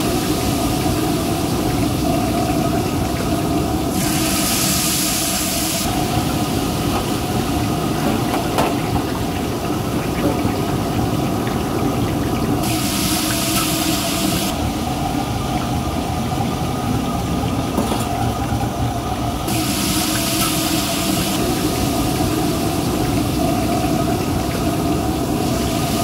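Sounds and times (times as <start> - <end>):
loud hissing: 0.0 - 8.4, 12.6 - 16.0, 19.4 - 26.0
gas wok stove rumbling drone: 0.0 - 26.0.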